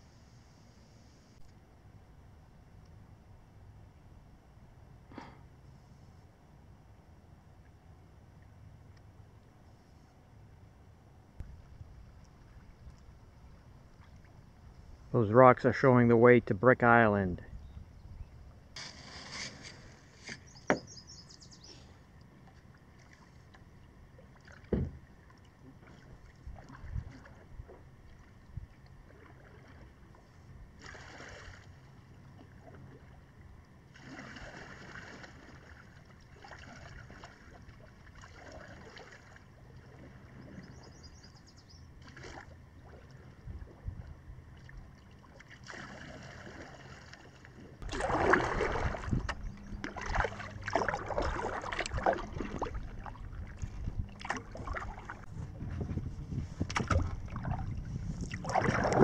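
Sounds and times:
paddle dipping in water: 11.4s - 15.1s, 18.5s - 59.0s
water sloshing: 18.8s - 59.0s.

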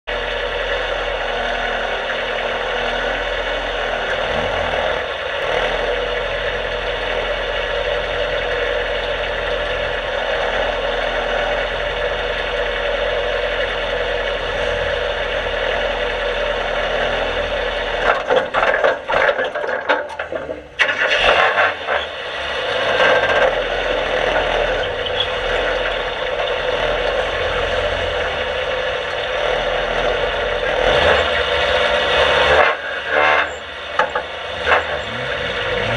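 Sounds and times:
race car engine idling: 0.0s - 35.9s
choppy engine knocks: 4.1s - 22.0s, 33.6s - 35.9s.

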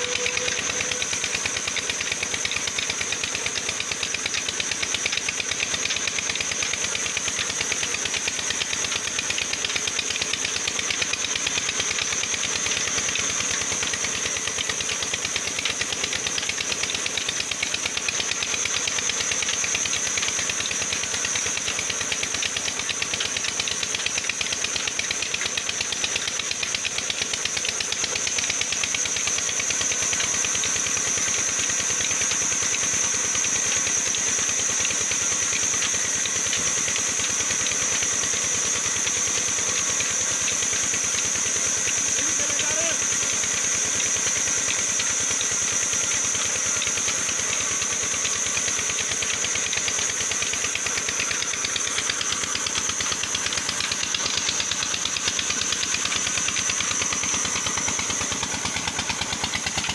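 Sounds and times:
high whine: 0.0s - 1.2s
band sawmill cutting log: 0.0s - 59.9s
engine knocking: 0.0s - 59.9s.

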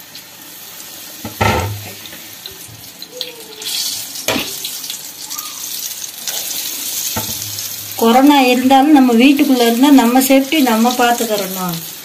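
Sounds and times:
deep-frying sizzle in oil: 0.0s - 12.0s
knock: 1.3s - 1.8s.

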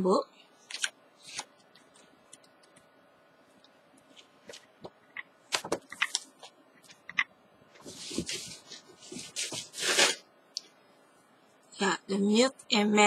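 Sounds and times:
book pages flipping: 0.6s - 2.8s, 4.0s - 10.2s.

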